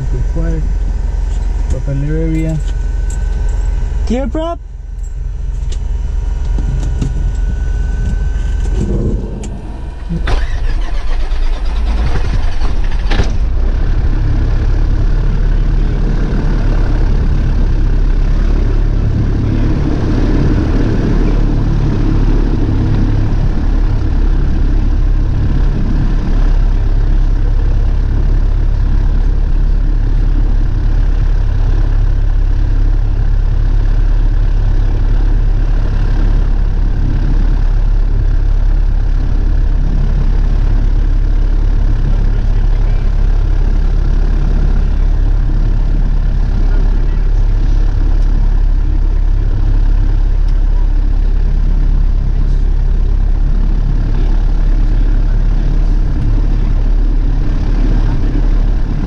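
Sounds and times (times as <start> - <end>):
aircraft engine idling: 0.0 - 59.0
starter cranking engine: 6.6 - 13.4.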